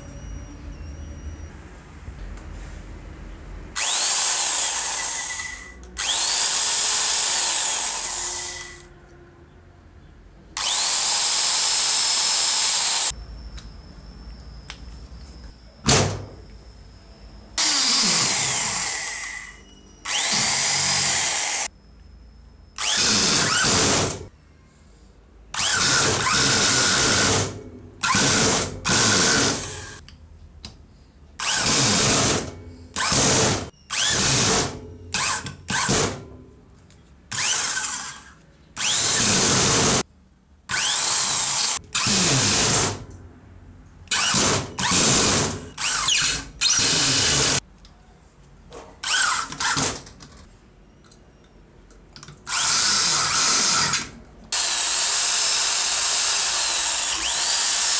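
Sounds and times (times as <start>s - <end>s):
electric screwdriver motor whirring: 3.8s - 8.8s, 20.1s - 21.7s, 22.8s - 24.2s, 40.7s - 42.8s, 52.5s - 54.0s, 54.6s - 57.9s.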